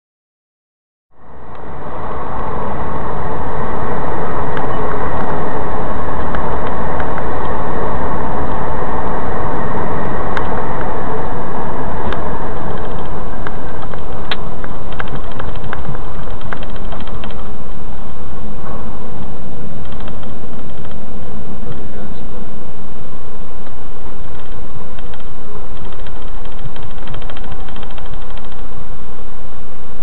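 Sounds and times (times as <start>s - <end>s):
road and engine noise: 1.1s - 30.0s
small clicks and rattles: 12.8s - 17.4s, 19.2s - 21.0s, 24.3s - 28.7s.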